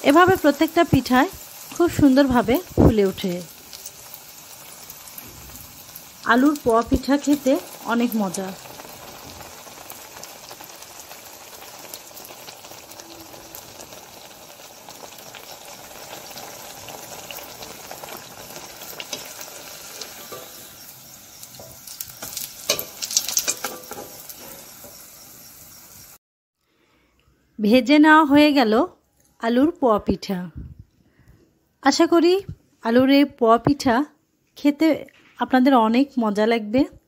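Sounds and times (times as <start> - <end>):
fritter sizzling in hot oil: 0.0 - 26.2.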